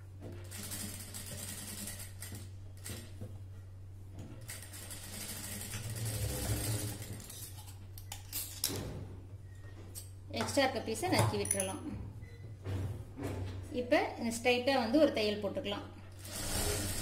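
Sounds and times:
sewing machine stitching: 4.4 - 7.4, 16.2 - 17.0.

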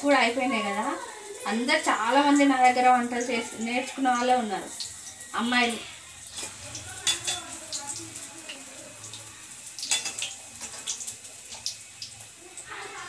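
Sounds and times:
food deep-frying in oil: 0.0 - 13.0
utensils knocking against pan: 6.3 - 7.6, 9.8 - 11.0.

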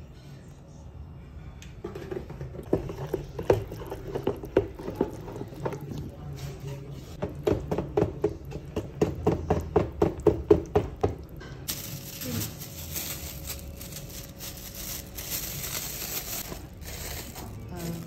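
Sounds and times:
wooden spatula stirring thick batter: 2.6 - 10.9
plastic bag rustling: 11.7 - 18.0.

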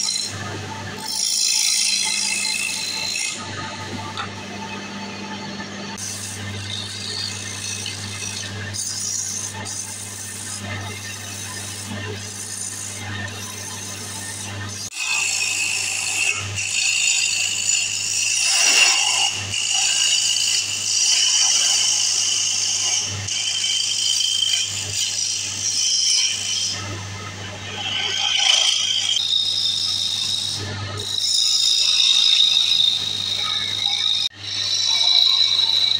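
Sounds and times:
lathe motor hum: 0.0 - 21.2.

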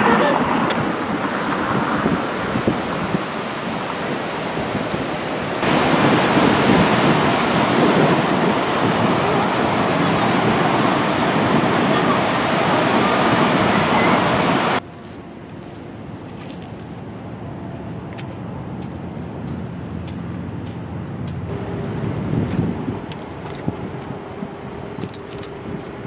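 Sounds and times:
ocean surf breaking on beach: 0.0 - 14.8
wind rushing: 0.0 - 14.8.

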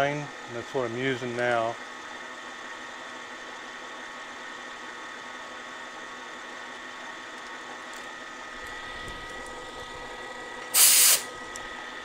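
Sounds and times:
loud hiss: 10.7 - 11.3.

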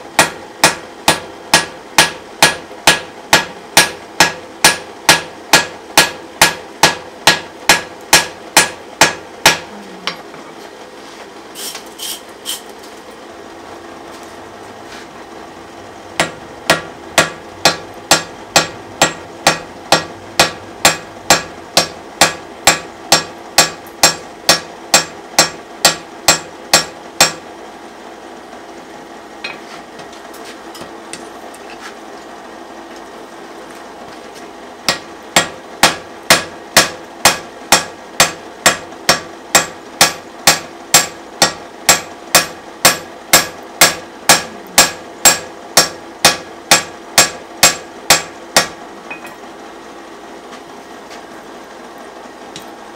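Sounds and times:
hammer striking hot iron on anvil: 0.1 - 10.2, 16.1 - 27.5, 34.8 - 49.4.

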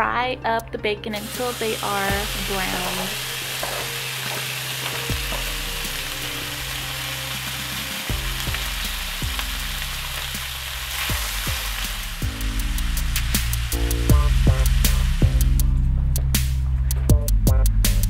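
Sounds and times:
bacon sizzling in a frying pan: 1.2 - 15.7.

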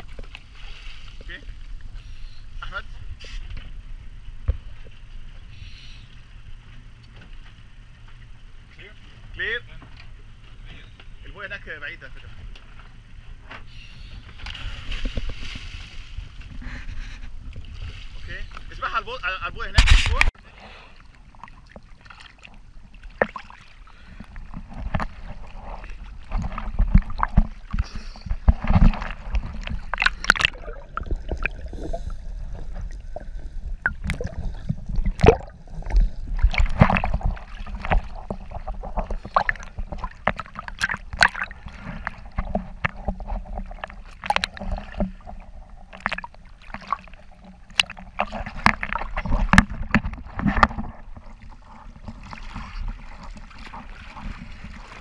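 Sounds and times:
sea water sloshing and gurgling: 0.0 - 55.0
knocks and splashes: 14.3 - 16.7, 21.3 - 55.0.

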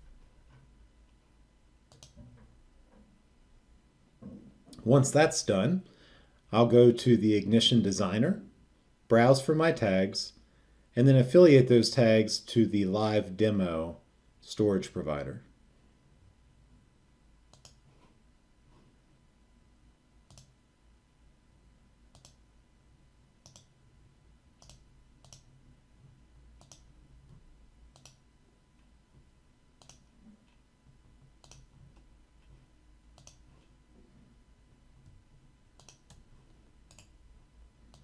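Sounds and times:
computer mouse clicks: 1.9 - 2.4, 17.5 - 18.2, 20.2 - 20.6, 22.1 - 22.4, 23.4 - 23.8, 24.6 - 25.5, 26.6 - 28.2, 29.8 - 33.8, 35.8 - 37.2.

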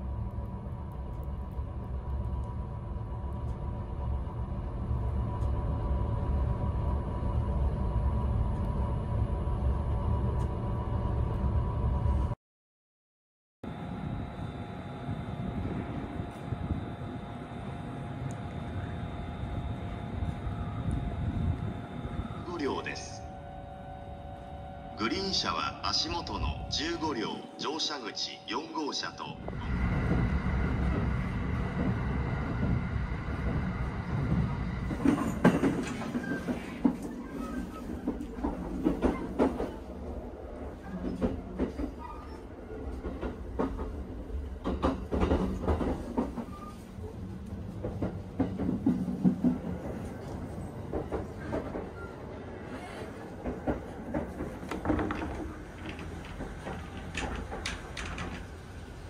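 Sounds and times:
train running rumble: 13.7 - 27.3, 29.4 - 59.0
door clicks and knocks: 54.6 - 58.6.

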